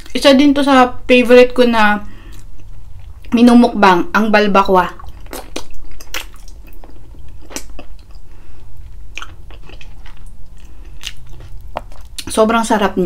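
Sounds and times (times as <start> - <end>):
person chewing: 2.2 - 3.4, 5.0 - 12.3.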